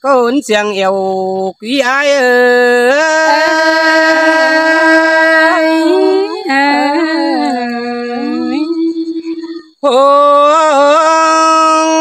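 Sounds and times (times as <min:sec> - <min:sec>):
man singing unaccompanied: 0:00.0 - 0:12.0.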